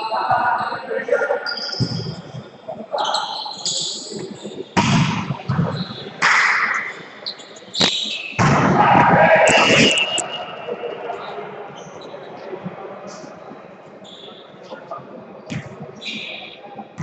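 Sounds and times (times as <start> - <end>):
players calling out: 7.8 - 12.4
people shouting: 8.4 - 10.2.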